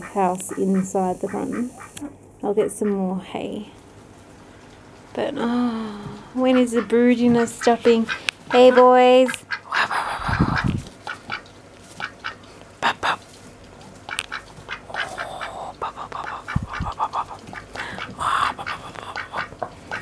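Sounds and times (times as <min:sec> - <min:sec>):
ducks quacking: 0:00.0 - 0:03.1, 0:06.4 - 0:13.0, 0:14.0 - 0:20.0.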